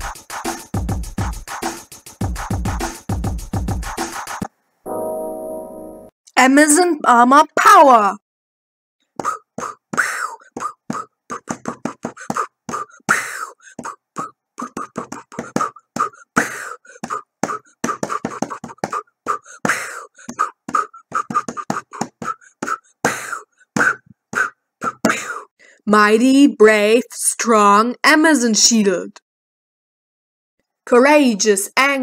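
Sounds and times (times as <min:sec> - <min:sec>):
beatboxing: 0:00.0 - 0:04.5, 0:09.2 - 0:25.2.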